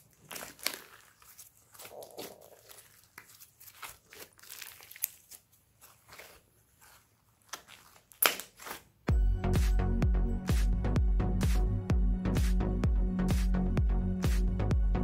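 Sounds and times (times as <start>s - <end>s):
loud electronic music: 9.1s - 15.0s.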